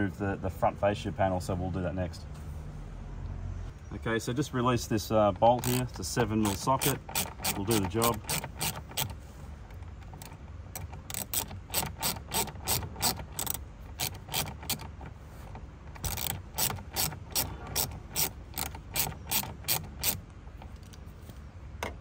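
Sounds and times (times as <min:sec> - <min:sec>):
socket ratchet clicking: 0:05.4 - 0:09.2, 0:09.8 - 0:15.1, 0:15.9 - 0:21.0.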